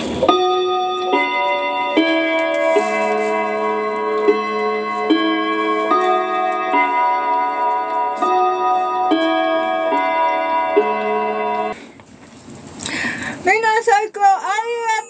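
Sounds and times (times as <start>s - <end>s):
clock ticking: 0.0s - 11.8s
electronic chords: 0.0s - 11.8s.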